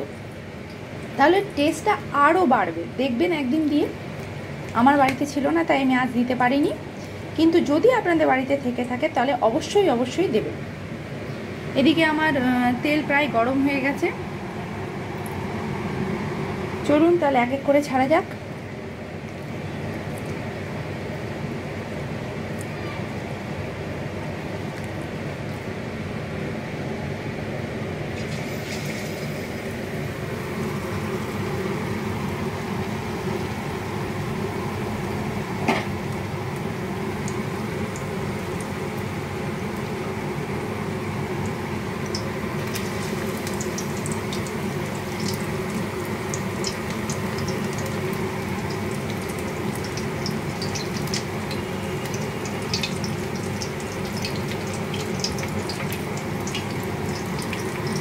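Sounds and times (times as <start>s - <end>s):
food deep-frying in oil: 27.9s - 58.0s.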